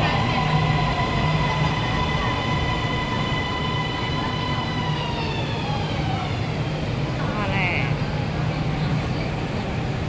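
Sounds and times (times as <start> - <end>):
train motors whining: 0.0 - 6.6
low train rumble: 0.0 - 10.0.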